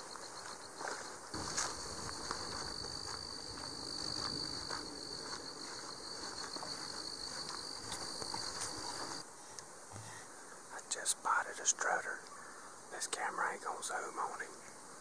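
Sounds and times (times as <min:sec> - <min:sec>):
footsteps through tall grass: 0:00.0 - 0:09.2
insect-like high-pitched trill: 0:00.0 - 0:09.2.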